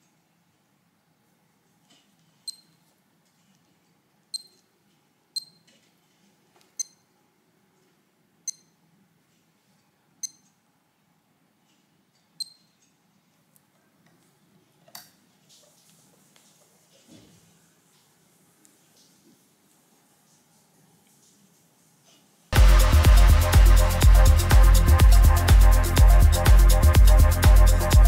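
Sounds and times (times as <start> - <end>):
watch beeping: 2.5 - 2.8, 4.4 - 4.6, 5.4 - 5.7, 6.8 - 7.0, 8.5 - 8.8.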